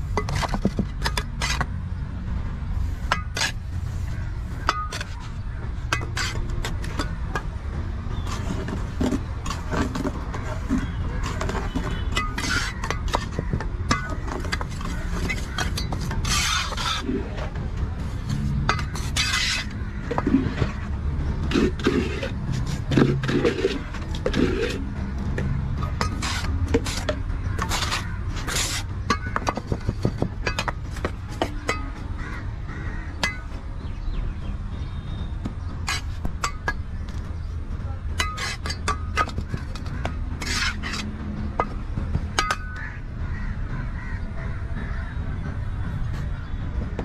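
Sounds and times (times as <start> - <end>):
trowel scraping concrete in mould: 0.0 - 1.7, 2.8 - 7.5, 8.2 - 25.0, 25.8 - 31.9, 35.8 - 36.8, 38.2 - 42.8.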